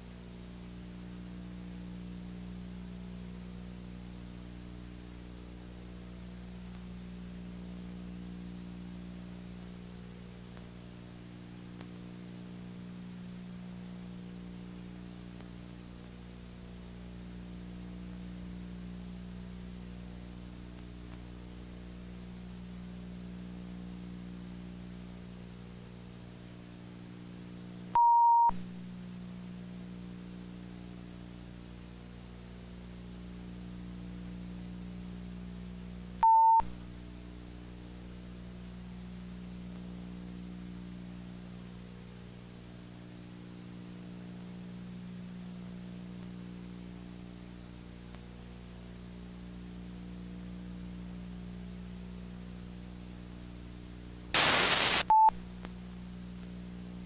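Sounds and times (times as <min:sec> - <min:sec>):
low electrical hum with hiss: 0:00.0 - 0:57.0
loud high beep: 0:36.2 - 0:36.6, 0:54.4 - 0:55.3.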